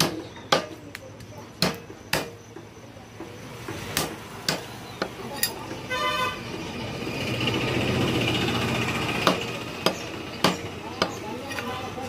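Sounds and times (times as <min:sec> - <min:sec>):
cleaver chopping onto wood block: 0:00.0 - 0:05.2, 0:09.2 - 0:11.7.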